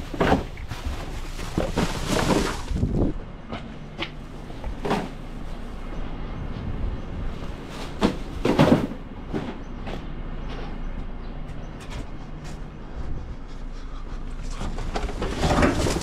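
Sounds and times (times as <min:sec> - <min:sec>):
clunks and clatters: 0:00.0 - 0:02.9, 0:07.8 - 0:10.8, 0:14.4 - 0:16.0
refuse truck engine hum: 0:00.0 - 0:15.8.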